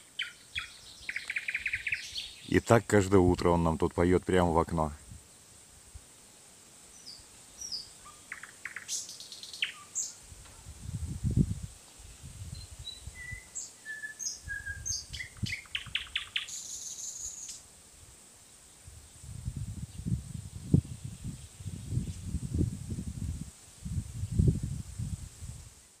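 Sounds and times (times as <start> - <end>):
nightingale singing: 0.0 - 2.6, 7.0 - 10.2, 12.5 - 17.6.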